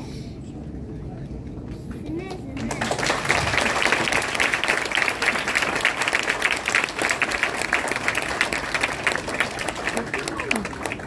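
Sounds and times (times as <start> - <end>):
crowd applauding: 2.6 - 11.0.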